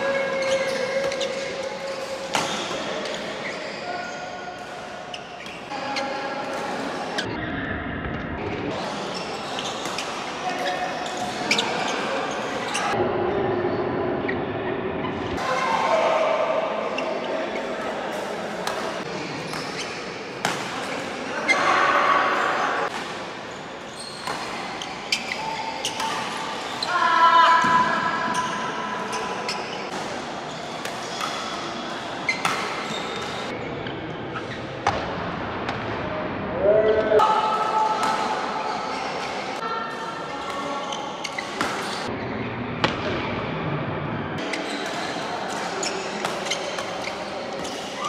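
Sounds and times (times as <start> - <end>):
rackets hitting shuttlecock: 0.4 - 3.3, 32.3 - 33.5.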